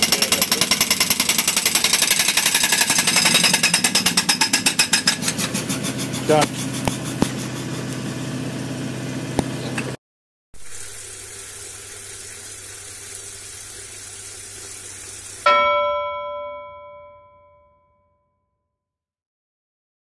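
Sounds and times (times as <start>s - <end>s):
engine running: 0.0s - 10.0s
water running from tap into sink: 10.6s - 15.5s
bell-like ding: 15.5s - 18.4s.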